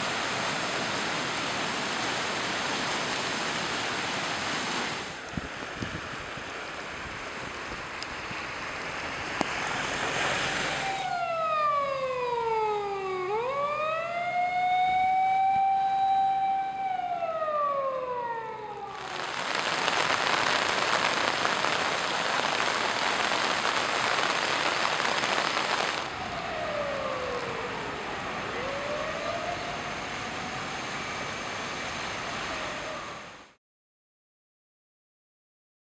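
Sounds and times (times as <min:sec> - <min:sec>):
rushing floodwater and rain: 0:00.0 - 0:11.6, 0:18.9 - 0:33.6
fire engine siren wailing: 0:09.9 - 0:33.6.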